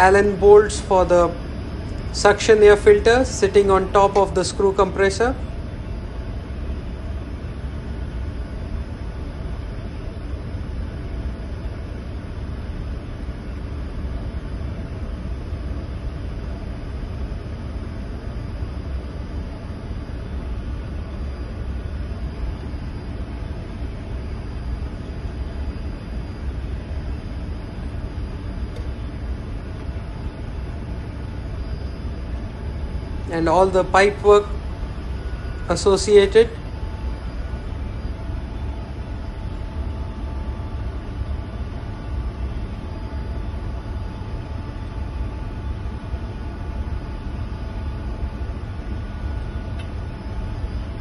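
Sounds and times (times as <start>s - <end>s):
engine room machinery rumble: 0.0s - 51.0s
faint steady hum: 0.0s - 51.0s
faint steady tones: 0.0s - 51.0s.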